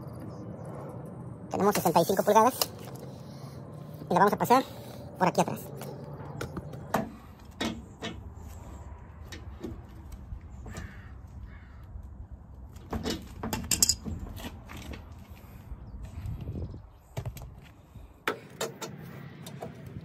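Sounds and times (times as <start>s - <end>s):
iron pipe knocking and scraping: 6.3s - 8.5s, 12.8s - 14.6s.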